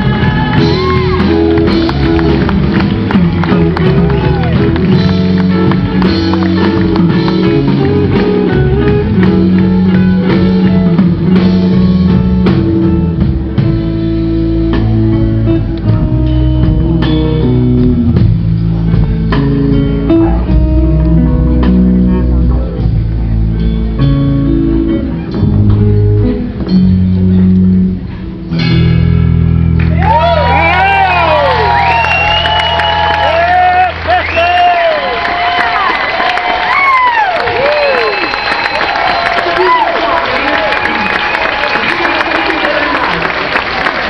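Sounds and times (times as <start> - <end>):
electric guitar lead with bends: 0.0 - 34.2
bass and drums: 0.0 - 44.0.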